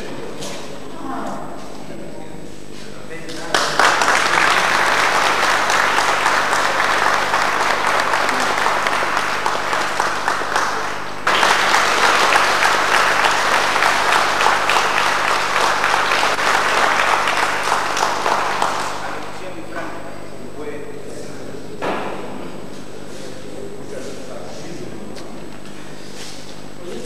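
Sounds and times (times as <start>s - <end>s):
audience clapping: 3.3s - 19.4s.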